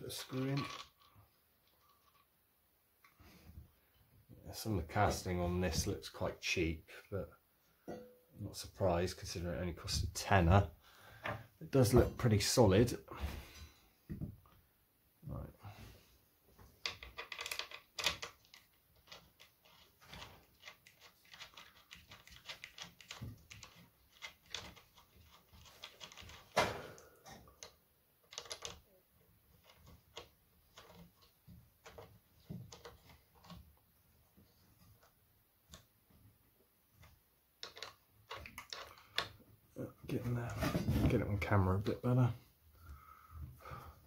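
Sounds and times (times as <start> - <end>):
metal and plastic parts clicking: 16.8 - 28.9, 37.0 - 39.4.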